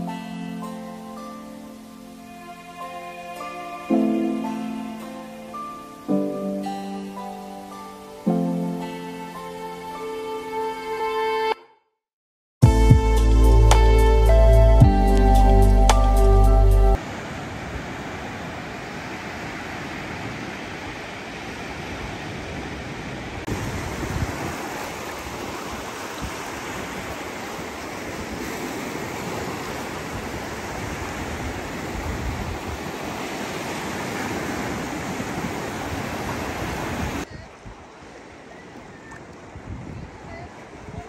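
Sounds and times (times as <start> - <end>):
sea surf breaking on beach: 17.0 - 41.0
wind rumble on microphone: 17.2 - 41.0.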